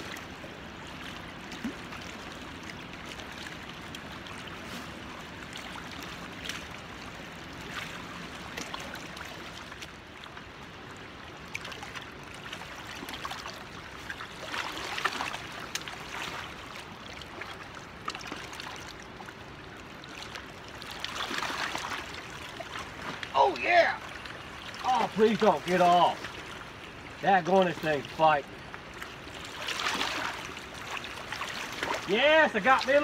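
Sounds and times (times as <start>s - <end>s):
river water rushing over rocks: 0.0s - 33.0s.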